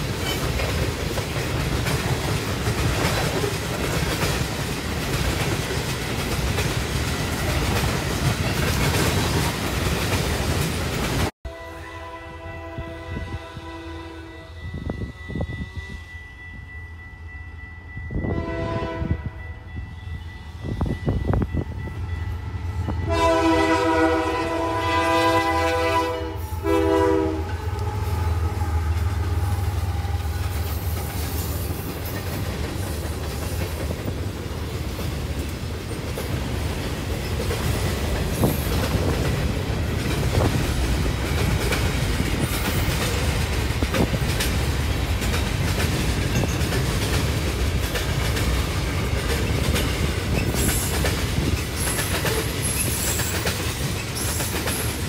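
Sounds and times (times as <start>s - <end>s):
train wheels clicking over rail joints: 0.0s - 11.3s, 29.0s - 55.0s
diesel locomotives passing: 0.0s - 55.0s
locomotive horn chord: 11.5s - 16.3s, 18.2s - 19.5s, 22.6s - 30.4s.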